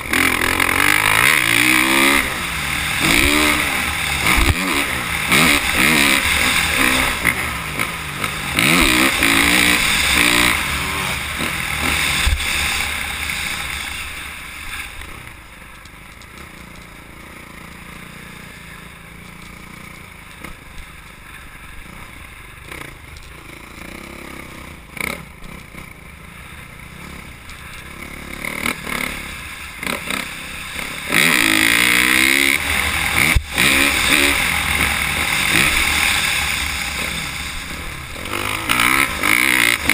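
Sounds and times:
motocross bike engine revving: 0.0s - 15.6s, 16.4s - 39.9s.

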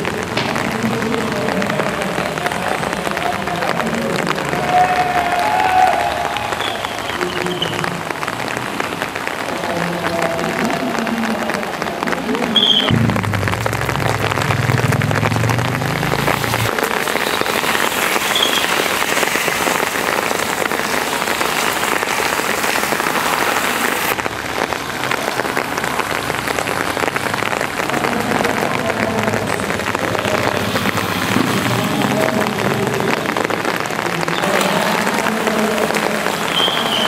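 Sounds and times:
heavy rain on a road: 0.0s - 37.0s.

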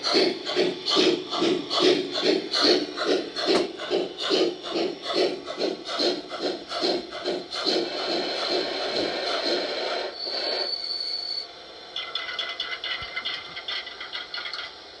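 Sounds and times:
fast rhythmic pulses: 0.0s - 9.9s
hissing steam sound: 0.0s - 15.0s.

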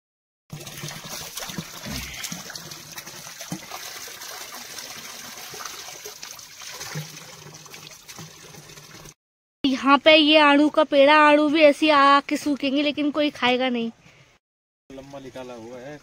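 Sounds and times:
water splashing from pipe: 0.5s - 9.2s.

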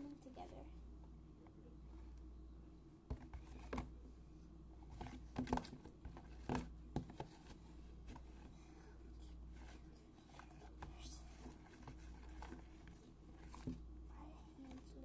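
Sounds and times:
steady low hum: 0.0s - 15.0s
plastic tubs clicking and knocking: 4.9s - 7.4s.

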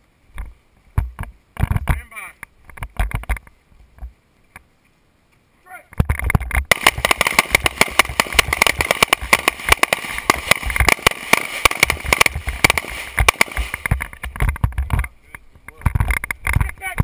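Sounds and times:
rapid overlapping rifle shots: 6.6s - 15.1s.

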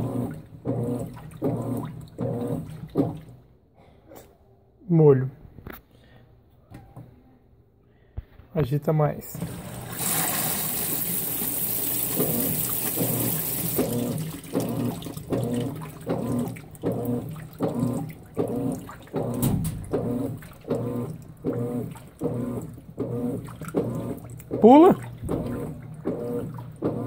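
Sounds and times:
washing machine motor humming: 0.0s - 3.4s, 9.3s - 27.0s
water rushing into tub: 9.3s - 27.0s.

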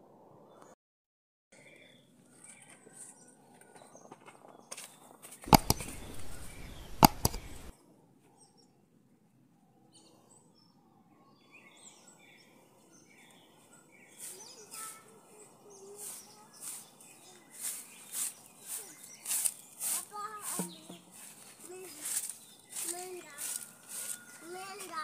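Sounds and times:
faint bird chirps: 1.6s - 8.8s, 9.5s - 25.0s
rustling noise: 4.2s - 7.7s, 16.0s - 25.0s
sharp knocks: 5.5s - 7.7s.

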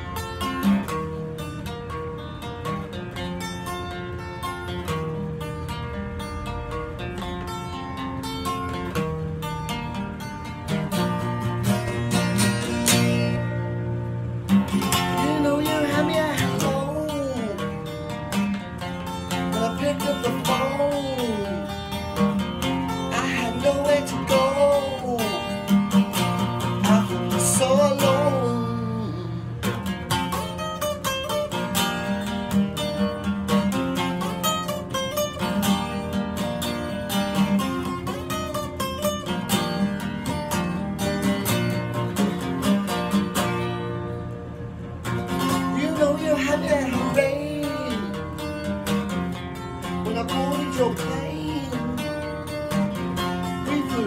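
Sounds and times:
acoustic guitar strumming: 0.0s - 54.0s
man singing: 14.7s - 18.6s, 19.3s - 29.8s, 45.4s - 49.1s, 49.8s - 54.0s.

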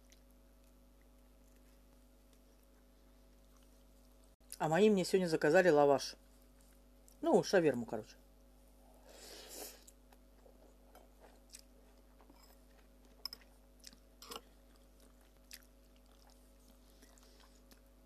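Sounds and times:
quiet chewing: 0.0s - 4.6s, 6.2s - 7.2s, 9.6s - 18.0s.

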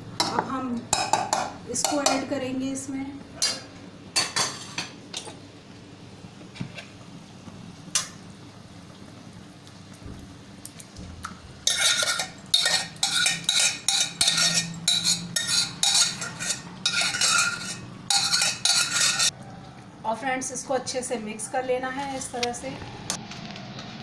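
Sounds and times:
metal spatula scraping cookware: 11.6s - 19.3s.

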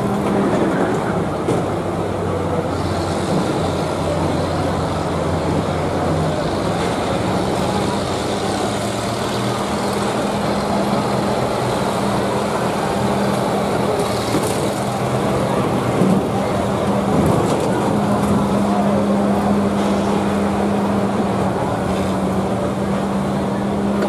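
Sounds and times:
combine harvester engines droning: 0.0s - 24.0s.

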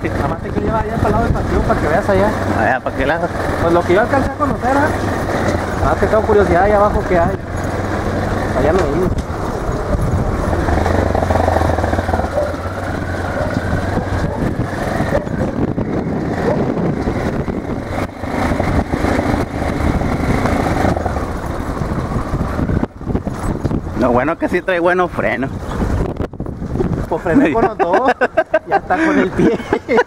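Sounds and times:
motorcycle engine revving: 0.0s - 24.8s.

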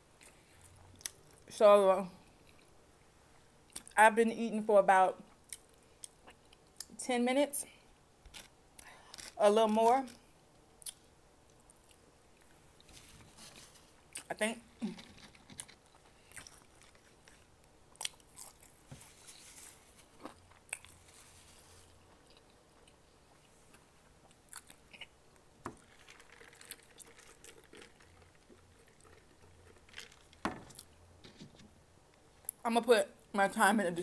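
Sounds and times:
person chewing fries: 14.9s - 25.2s, 25.8s - 31.0s.

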